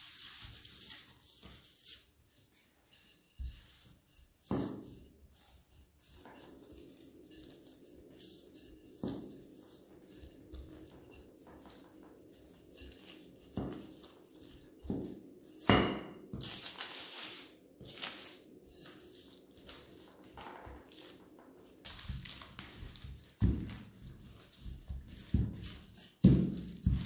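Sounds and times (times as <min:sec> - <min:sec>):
paper rustling: 0:00.0 - 0:02.9, 0:16.4 - 0:27.0.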